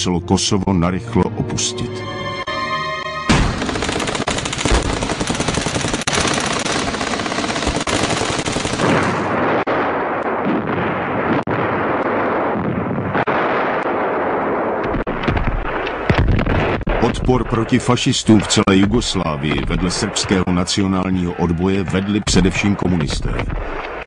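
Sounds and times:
rapid gunfire: 0:03.3 - 0:17.1
louder separate gunshots: 0:07.8 - 0:17.2.

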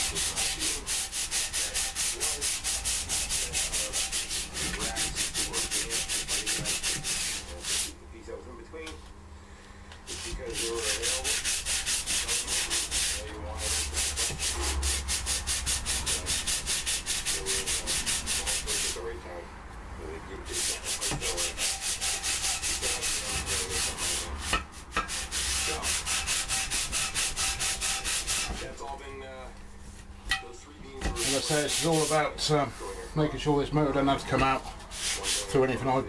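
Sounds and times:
stone rubbing on cast iron: 0:00.0 - 0:07.9, 0:10.1 - 0:19.0, 0:20.5 - 0:28.7, 0:31.0 - 0:33.0, 0:34.2 - 0:35.6.

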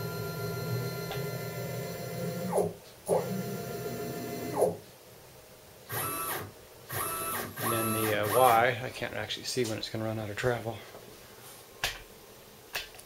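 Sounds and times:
stepper motor whine: 0:05.9 - 0:08.6.

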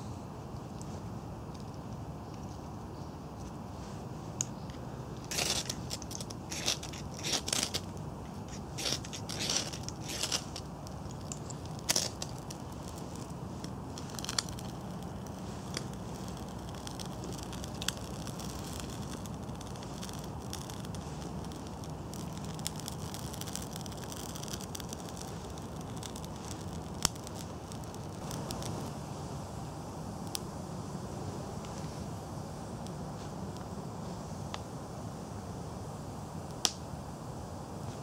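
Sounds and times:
kindling crackling and popping: 0:00.5 - 0:29.0, 0:36.5 - 0:37.0.

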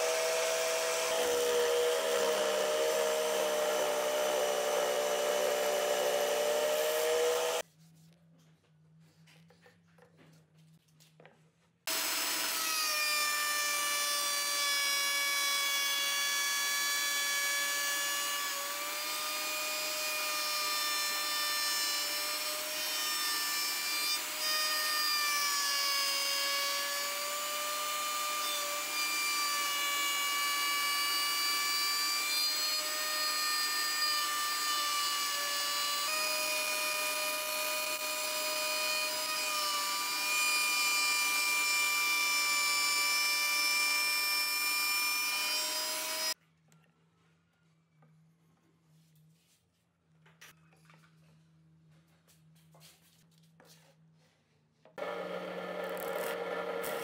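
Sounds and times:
router bit cutting wood: 0:00.0 - 0:07.6, 0:11.9 - 0:46.4, 0:55.0 - 0:57.0
router motor whining: 0:00.0 - 0:07.6, 0:11.9 - 0:46.4, 0:55.0 - 0:57.0.

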